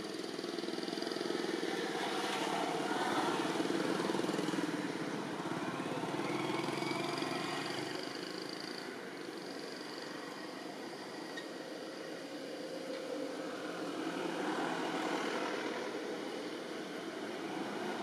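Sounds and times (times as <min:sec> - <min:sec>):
small engine running: 0:00.0 - 0:10.8.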